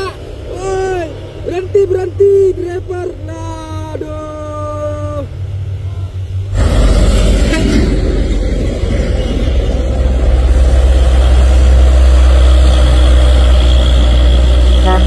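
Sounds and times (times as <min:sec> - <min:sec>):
steady pitched tone: 0:01.8 - 0:15.0
truck diesel engine under load: 0:05.4 - 0:15.0.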